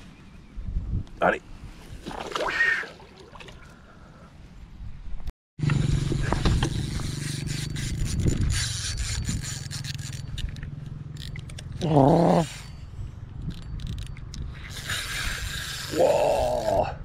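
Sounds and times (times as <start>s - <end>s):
fishing reel drag buzzing: 6.6s - 10.6s, 13.5s - 16.7s.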